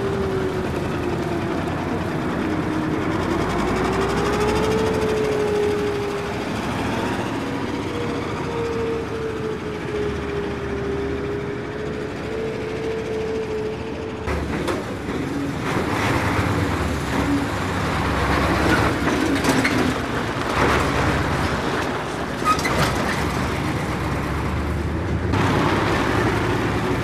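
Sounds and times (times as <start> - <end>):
vehicle engines rumbling: 0.0 - 27.0
vehicle clanks: 13.5 - 27.0.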